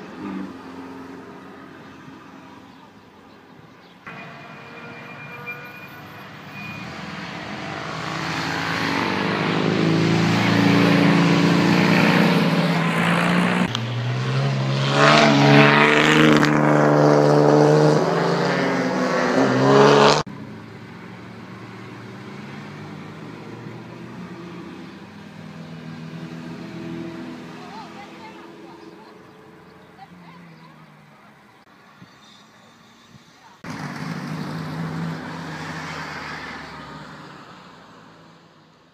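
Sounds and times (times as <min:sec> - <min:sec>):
racing car engine revving past: 0:06.6 - 0:20.3.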